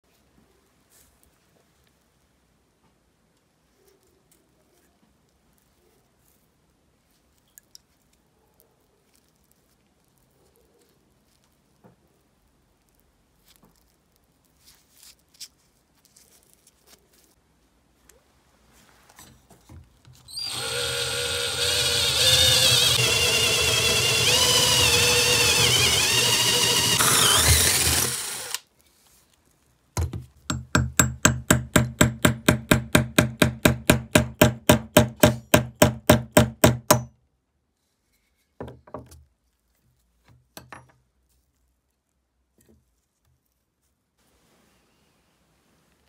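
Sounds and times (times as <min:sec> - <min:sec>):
electric drill whining: 0:20.3 - 0:28.6
hammer striking steel punch: 0:30.5 - 0:37.1.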